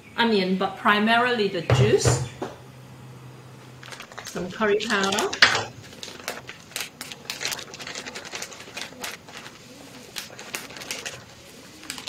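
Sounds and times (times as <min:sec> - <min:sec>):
plastic packet crinkling: 0:03.8 - 0:12.0.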